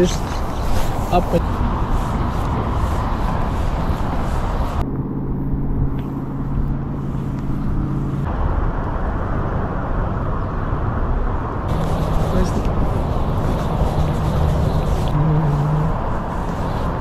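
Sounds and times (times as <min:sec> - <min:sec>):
wind on microphone: 0:00.0 - 0:17.0
low hum of several pitches: 0:04.8 - 0:08.3.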